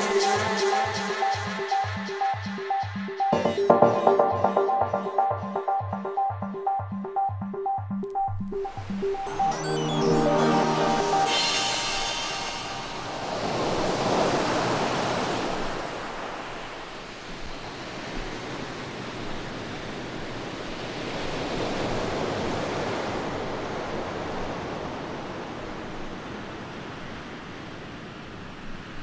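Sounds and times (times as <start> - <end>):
electronic noise sweeps: 0.0 - 13.9.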